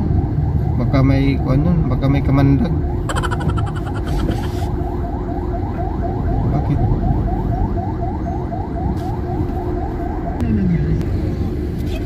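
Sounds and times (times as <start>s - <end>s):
electronic alarm tone chirping: 3.1s - 4.7s.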